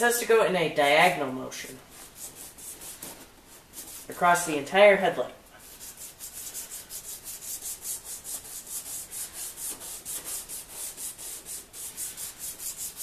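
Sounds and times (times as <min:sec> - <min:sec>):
wet-sanding plastic by hand: 0:01.9 - 0:04.2, 0:05.6 - 0:13.0.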